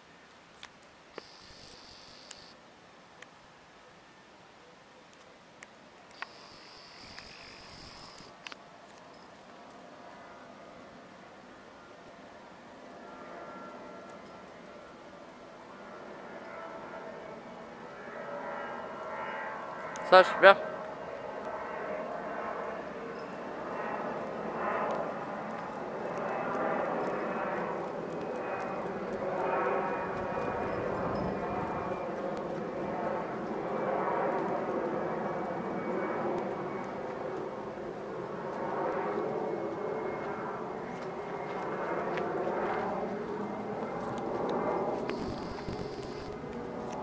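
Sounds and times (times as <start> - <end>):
distant engine drone: 9.8 - 47.0.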